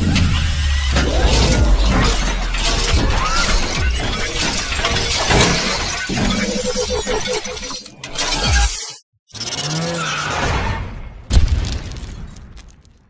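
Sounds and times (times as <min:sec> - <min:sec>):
low rumble: 0:00.0 - 0:04.9.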